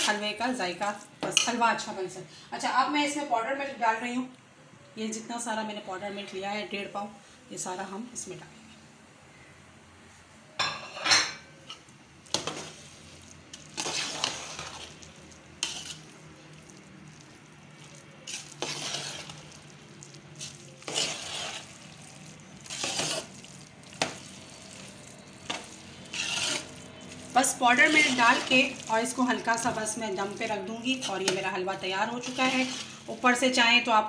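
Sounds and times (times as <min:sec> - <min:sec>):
spoon stirring and scraping a pot: 0:00.0 - 0:01.8, 0:10.7 - 0:33.6.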